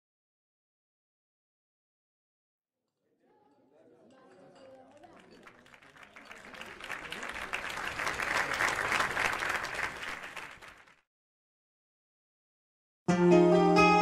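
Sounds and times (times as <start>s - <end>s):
crowd applauding: 3.2s - 11.1s.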